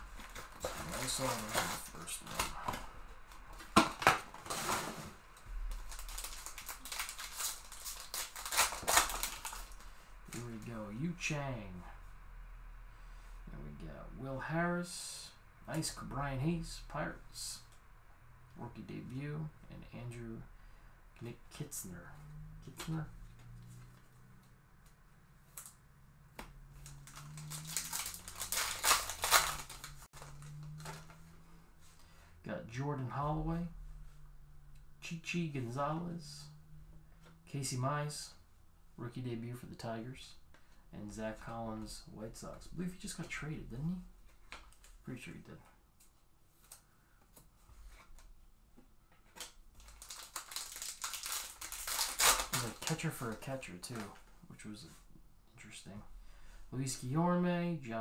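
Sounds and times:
cards rustling and shuffling: 0.0s - 10.7s, 26.4s - 32.0s, 46.0s - 48.3s, 49.1s - 54.3s
foil wrapper tearing and crinkling: 0.1s - 2.6s, 5.7s - 9.9s, 26.8s - 31.0s, 49.4s - 53.1s.

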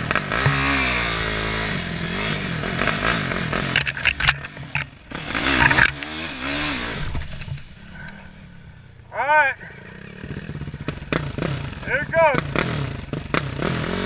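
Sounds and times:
quad engine revving: 0.0s - 14.0s
branch scraping across quad: 1.7s - 8.8s.

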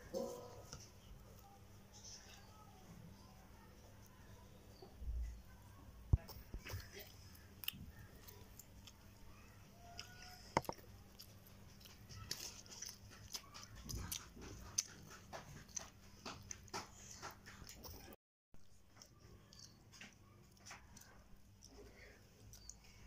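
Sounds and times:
clicks and taps of food handling: 10.0s - 18.1s, 18.8s - 22.8s.

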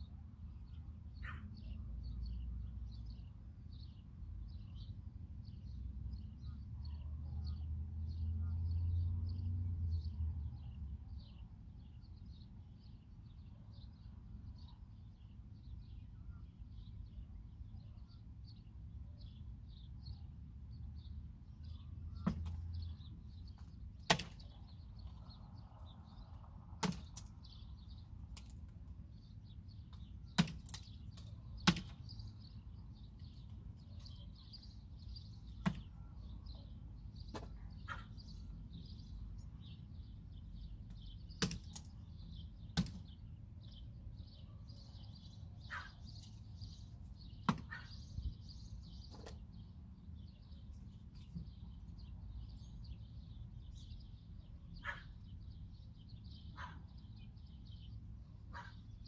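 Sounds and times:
sharp knocks: 24.1s - 24.5s, 26.8s - 27.3s.

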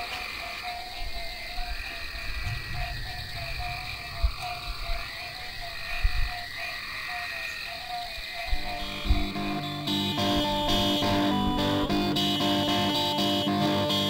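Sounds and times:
frogs croaking: 0.0s - 14.0s
soft low thumps: 8.6s - 12.1s.

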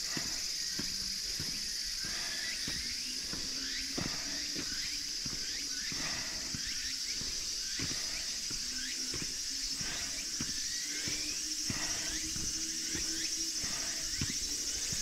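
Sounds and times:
footsteps on road: 0.0s - 15.0s
insects droning: 0.0s - 15.0s.

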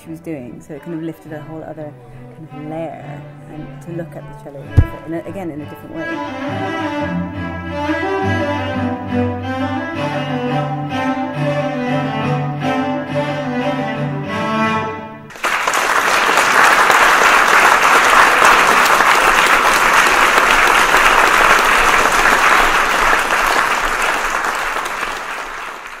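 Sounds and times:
cello bowed notes: 0.0s - 15.3s
audience applause: 15.3s - 26.0s.

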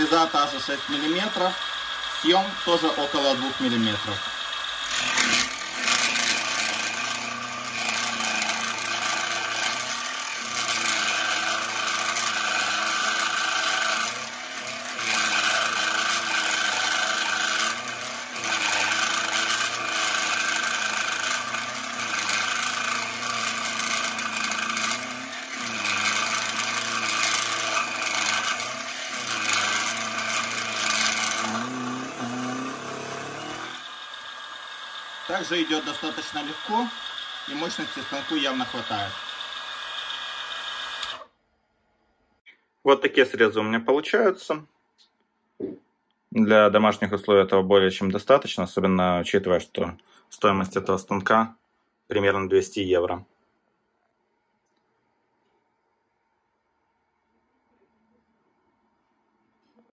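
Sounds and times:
end mill rasping in steel: 0.0s - 41.2s
milling machine motor hum: 0.0s - 41.3s.

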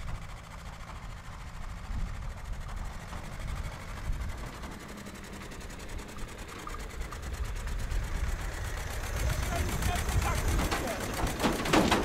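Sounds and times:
tractor diesel engine chugging: 0.0s - 12.0s.

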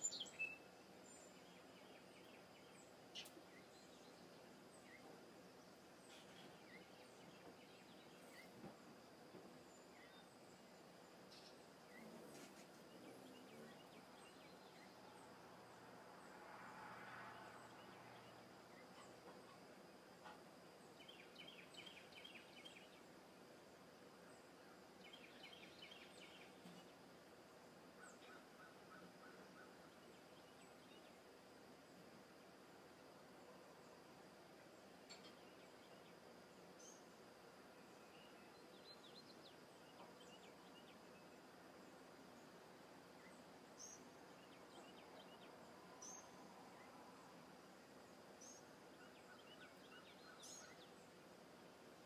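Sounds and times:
soft swell of noise: 9.0s - 20.2s.

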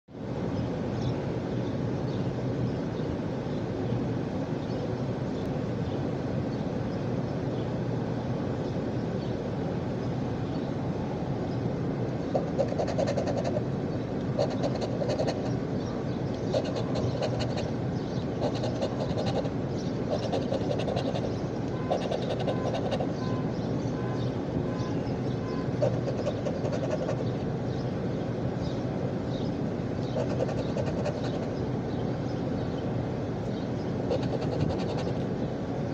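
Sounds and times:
steady low rumble: 10.0s - 35.9s
coin scratching lottery ticket: 12.4s - 13.6s, 14.4s - 15.5s, 16.5s - 17.7s, 18.4s - 19.5s, 20.1s - 23.1s, 25.8s - 27.2s, 30.2s - 31.4s, 34.1s - 35.2s.

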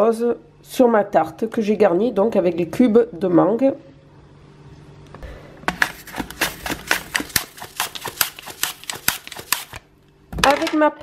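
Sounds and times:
apple sliced on mandoline: 5.8s - 9.8s.

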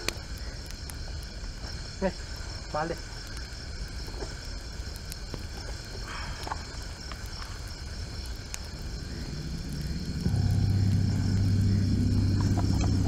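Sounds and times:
campfire crackling: 0.0s - 13.0s
crickets chirping: 0.0s - 13.0s
low rumble: 8.6s - 13.0s
loud low drone: 8.9s - 13.0s.

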